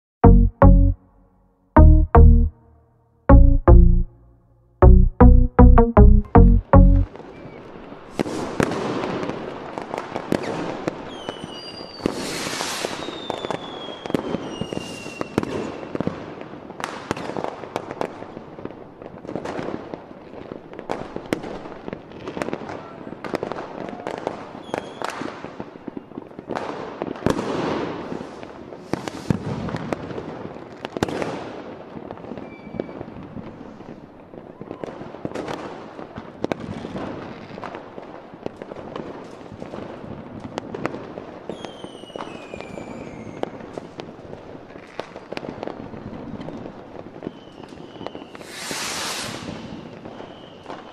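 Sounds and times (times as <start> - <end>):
whistling fireworks: 7.1 - 50.9
firework bursts and bangs: 7.3 - 50.9.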